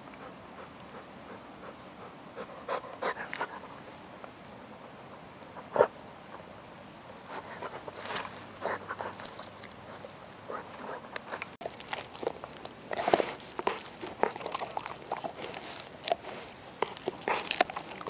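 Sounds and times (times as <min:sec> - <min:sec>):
dog gnawing wooden stick: 0:07.2 - 0:18.0.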